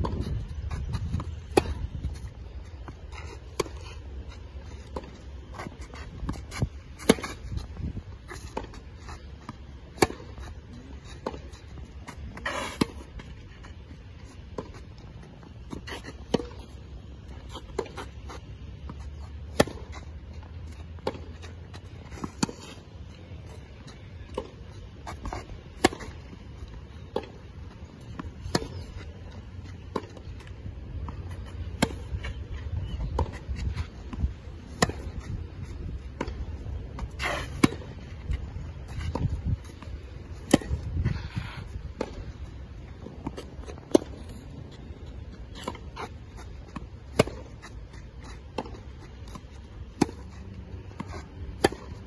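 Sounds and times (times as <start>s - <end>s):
tennis ball bounces: 0.0s - 3.8s, 4.6s - 13.3s, 14.5s - 52.0s
rackets striking tennis ball: 4.6s - 10.4s, 14.4s - 52.0s.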